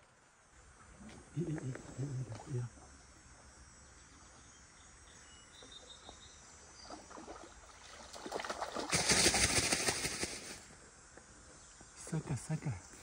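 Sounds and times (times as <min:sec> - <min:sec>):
faint insect chirps: 0:00.0 - 0:13.0
fish splashing in water: 0:06.9 - 0:10.5.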